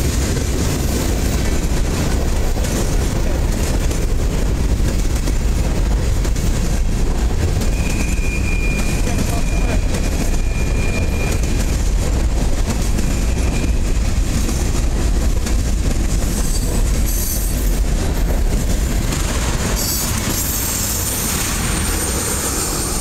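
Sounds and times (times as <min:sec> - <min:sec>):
train wheels rumbling on rails: 0:00.0 - 0:23.0
high-pitched wheel squeal: 0:07.6 - 0:11.7, 0:13.0 - 0:14.0.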